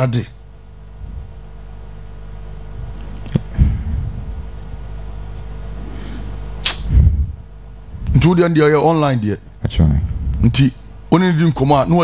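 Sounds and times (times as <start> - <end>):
low studio room hum: 0.0 - 12.0
sharp click: 6.6 - 7.0.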